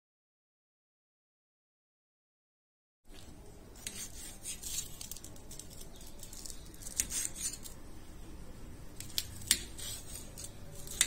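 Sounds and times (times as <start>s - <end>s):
knife clicking and scraping on metal: 3.8s - 7.8s, 9.0s - 11.0s.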